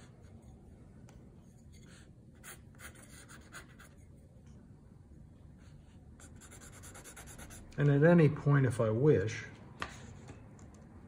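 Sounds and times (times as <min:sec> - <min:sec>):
pen scratching on paper: 0:02.4 - 0:04.0, 0:06.2 - 0:07.7.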